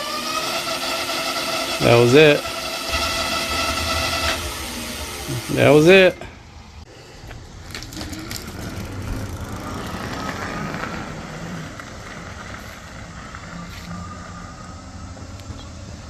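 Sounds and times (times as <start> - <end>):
electric motor whine: 0.0 - 6.4
tyre and road noise: 1.8 - 16.0.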